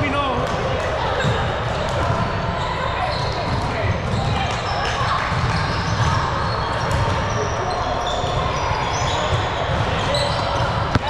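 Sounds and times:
echoing din of play: 0.0s - 11.0s
ball bouncing: 9.2s - 11.0s.

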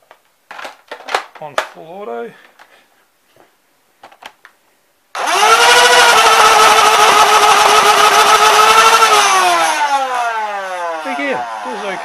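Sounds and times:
blaster motors high whine: 5.2s - 12.0s.

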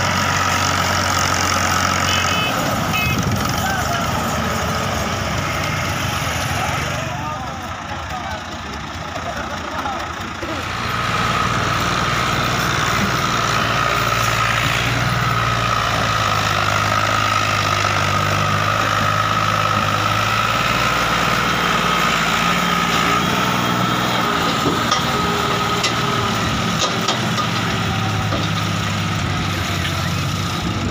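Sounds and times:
tractor engine running: 0.0s - 30.9s.

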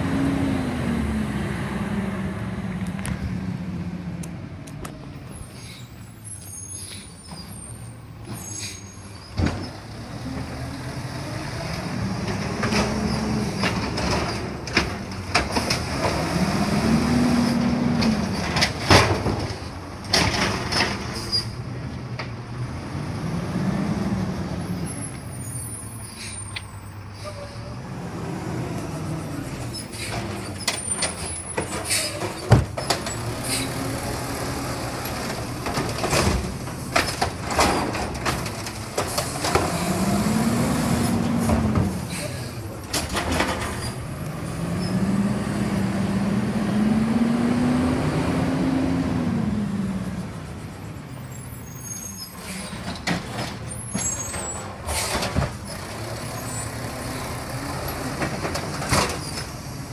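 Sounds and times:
diesel engine idling and revving: 0.0s - 59.9s
clunks of arm and carts: 8.2s - 10.6s, 11.6s - 16.4s, 17.4s - 22.5s, 29.6s - 45.0s, 52.3s - 59.9s
air brake hisses: 26.1s - 27.6s, 42.0s - 42.6s.

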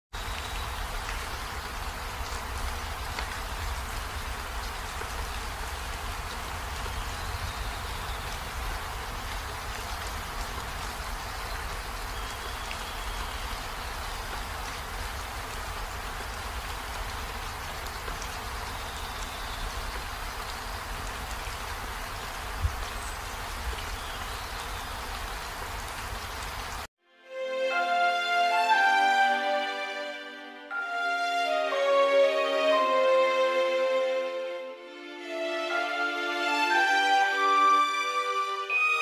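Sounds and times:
falling water hissing: 0.2s - 26.9s.

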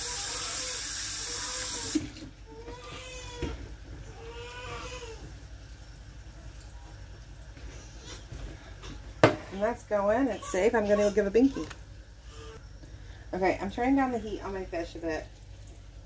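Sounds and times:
soft drawn-out cries: 10.1s - 12.6s.

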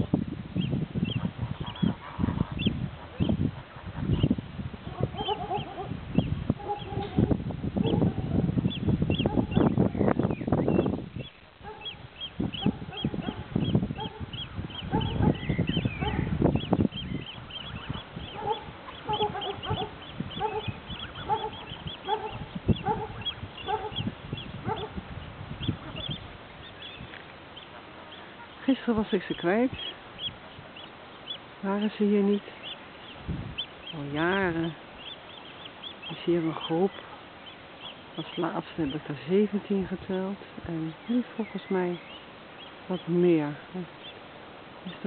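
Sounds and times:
wind rumble on microphone: 0.0s - 44.2s
geese honking: 11.7s - 25.0s.

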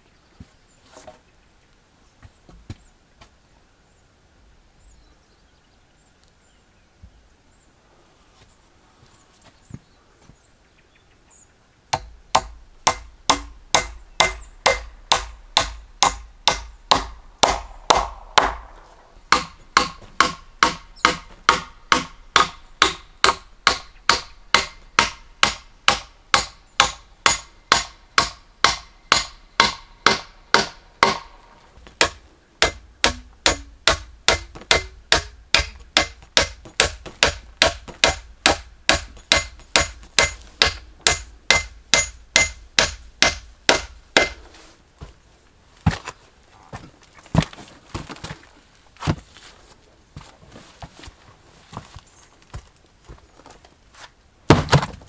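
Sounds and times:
hammer blows on wood: 32.0s - 44.4s.

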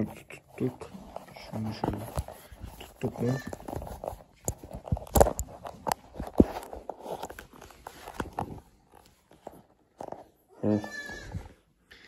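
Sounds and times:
phone handling rustling: 1.0s - 10.4s.

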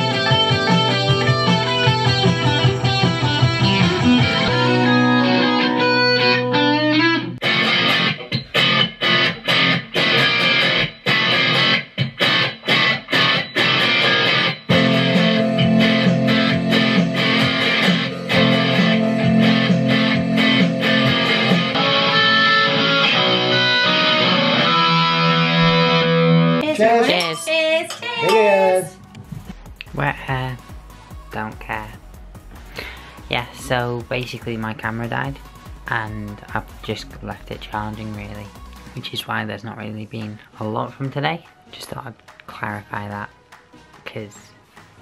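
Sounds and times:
electric guitar chords and riffs: 0.0s - 26.8s, 32.0s - 33.2s.

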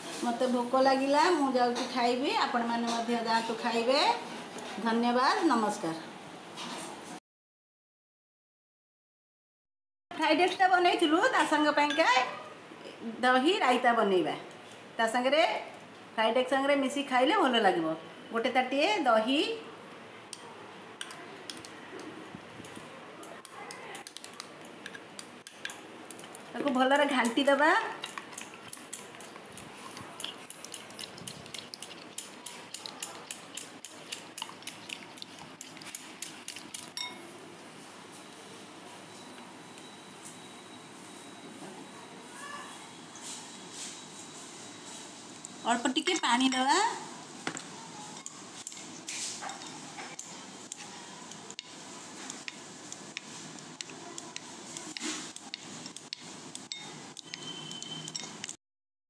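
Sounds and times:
spoon stirring curd: 23.4s - 37.2s, 47.5s - 58.6s
spoon tapping glass bowl: 37.0s - 37.2s, 56.7s - 58.6s.

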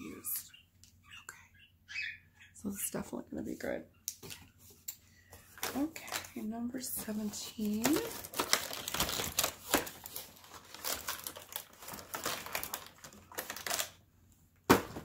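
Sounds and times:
cardboard rustling and crinkling: 4.2s - 14.0s.

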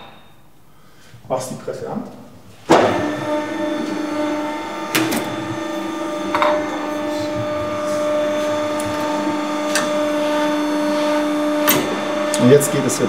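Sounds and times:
pump motor humming: 2.7s - 13.0s.

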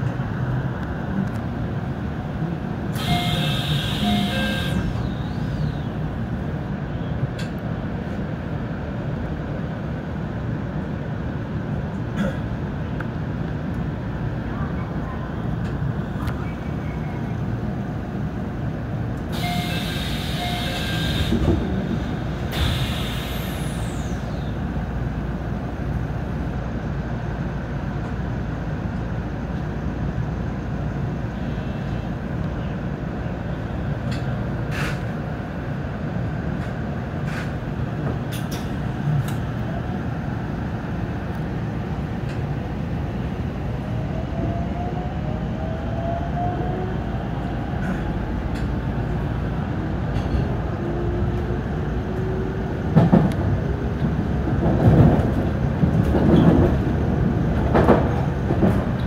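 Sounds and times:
air hiss: 22.5s - 24.2s
train equipment rumble: 46.9s - 59.0s.

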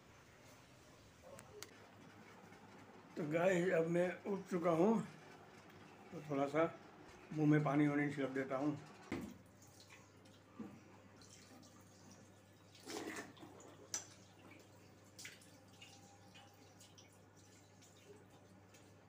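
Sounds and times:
water splashing in wash basin: 9.2s - 19.0s.

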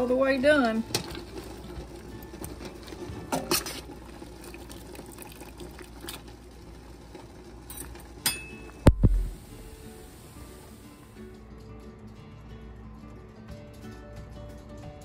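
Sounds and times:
pot bubbling at a boil: 0.0s - 11.3s.

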